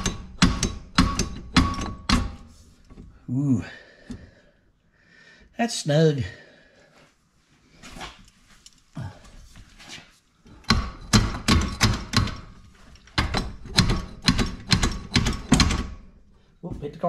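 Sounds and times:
sharp metallic clanks: 0.0s - 2.5s.

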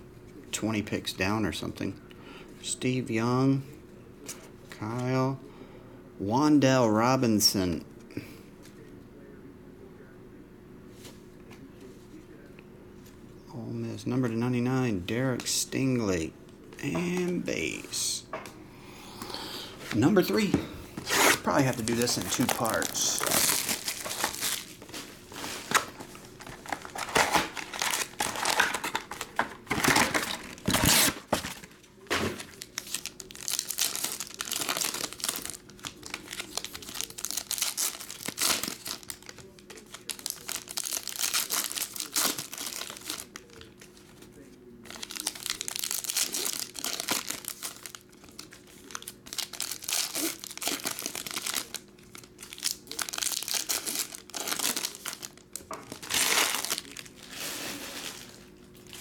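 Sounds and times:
foil packs crinkling and tearing: 20.1s - 59.0s.

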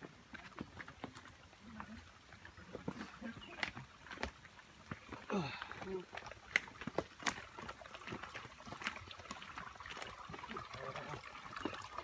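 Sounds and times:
stream trickling over rocks: 0.0s - 12.0s.

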